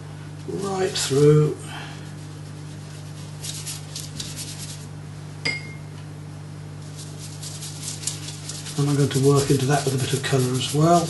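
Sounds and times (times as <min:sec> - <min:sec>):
steady low hum: 0:00.0 - 0:11.0
brush strokes on paper: 0:02.1 - 0:04.9, 0:06.8 - 0:11.0.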